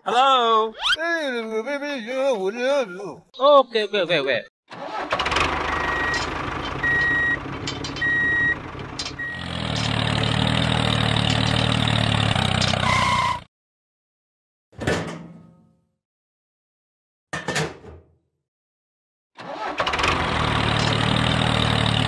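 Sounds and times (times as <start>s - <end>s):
vehicle engine running: 5.3s - 12.8s, 20.1s - 22.0s
reversing beeps: 5.8s - 6.2s, 6.8s - 7.4s, 8.0s - 8.6s, 9.2s - 9.4s.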